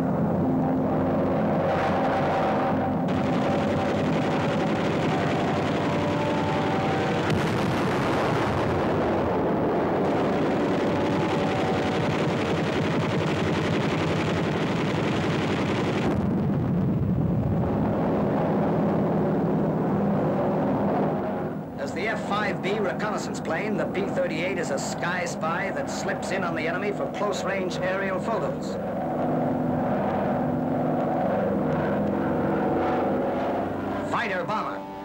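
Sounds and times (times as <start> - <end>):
droning tones: 0.0 - 35.0
explosions: 1.6 - 33.6
gunfire: 3.1 - 9.0, 10.0 - 16.3.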